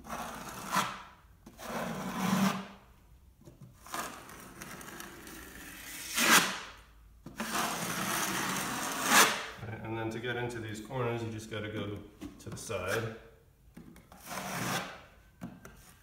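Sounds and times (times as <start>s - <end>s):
taping knife scraping a wall: 0.0s - 2.8s, 3.6s - 9.6s, 14.0s - 16.0s.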